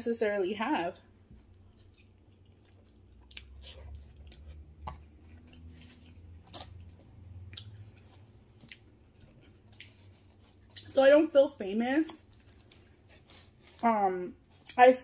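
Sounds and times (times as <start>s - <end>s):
wet chewing: 1.4s - 11.0s.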